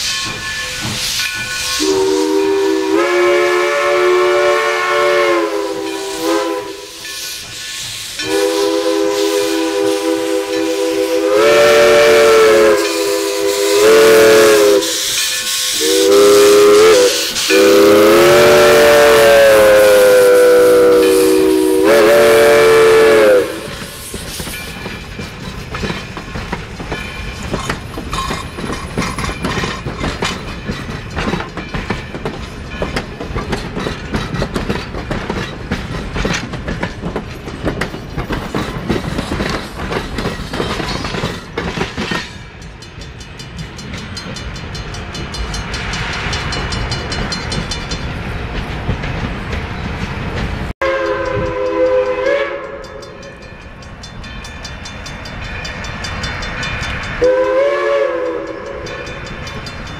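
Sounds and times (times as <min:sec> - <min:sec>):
steam locomotive chime whistle: 0:00.0 - 0:26.2, 0:50.8 - 0:59.9
steam hissing: 0:00.0 - 0:50.7
train coaches clattering past: 0:00.0 - 0:59.9.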